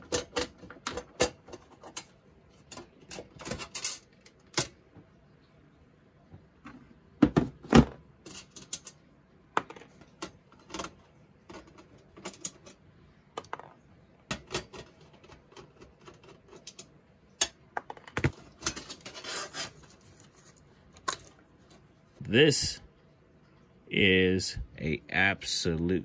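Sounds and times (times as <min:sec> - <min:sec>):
metal clicks and rattles: 0:00.0 - 0:04.8, 0:08.2 - 0:09.0, 0:09.6 - 0:12.8, 0:13.4 - 0:19.2
short scrape: 0:19.0 - 0:19.9.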